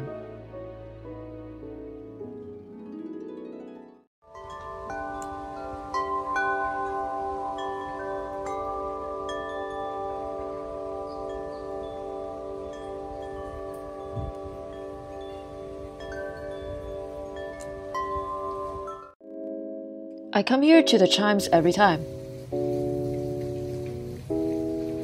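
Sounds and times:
metal tube wind chimes ringing: 0:04.2 - 0:19.2.

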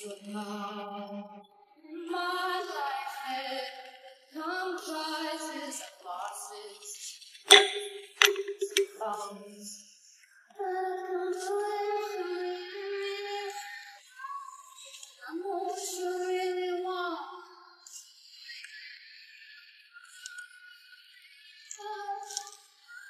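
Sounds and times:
woman singing: 0:00.0 - 0:01.3, 0:01.9 - 0:07.6, 0:08.6 - 0:09.8, 0:10.6 - 0:17.6, 0:21.8 - 0:22.5
sharp clicks: 0:07.5 - 0:09.0.

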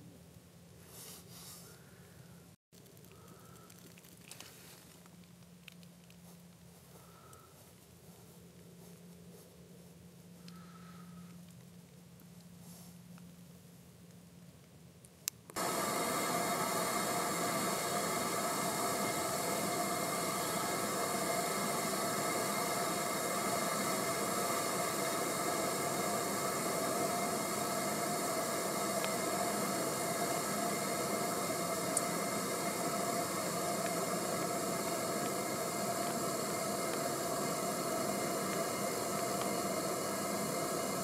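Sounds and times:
gas stove burner hissing: 0:15.5 - 0:41.0.

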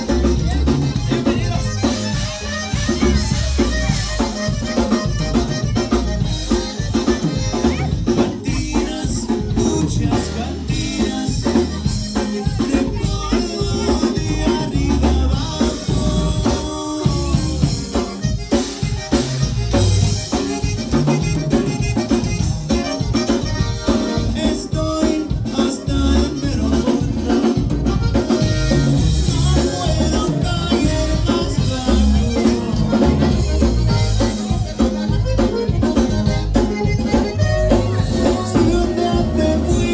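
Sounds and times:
button accordion: 0:00.0 - 0:39.9
drum kit dance beat: 0:00.0 - 0:39.9
person singing: 0:06.5 - 0:18.1, 0:23.3 - 0:35.0, 0:36.5 - 0:39.9.

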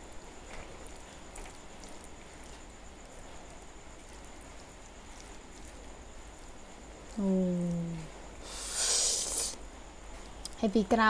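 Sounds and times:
steady rain: 0:00.0 - 0:11.0
chopsticks mixing noodles: 0:01.3 - 0:05.9.

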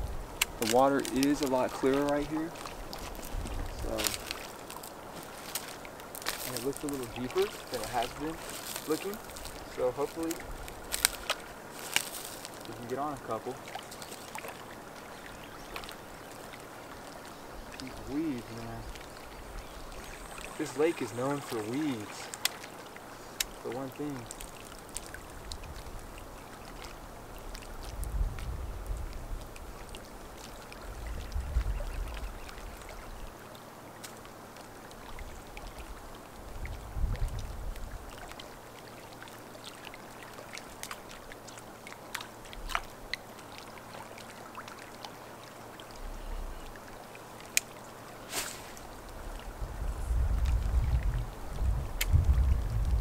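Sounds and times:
wind buffeting microphone: 0:00.0 - 0:04.3, 0:27.7 - 0:29.6, 0:30.8 - 0:33.2, 0:36.4 - 0:38.1, 0:48.8 - 0:53.0
steady background hiss: 0:00.0 - 0:27.9, 0:28.5 - 0:50.3.

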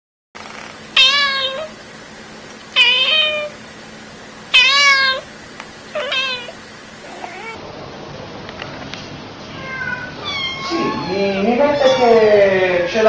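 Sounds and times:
cat meowing: 0:01.0 - 0:01.7, 0:02.8 - 0:03.6, 0:04.5 - 0:05.3, 0:05.9 - 0:07.6, 0:09.5 - 0:12.4.

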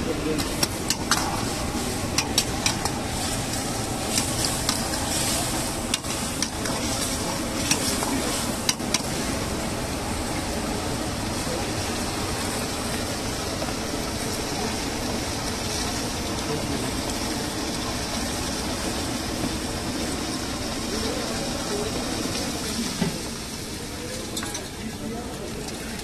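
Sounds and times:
food sizzling: 0:00.0 - 0:24.6.

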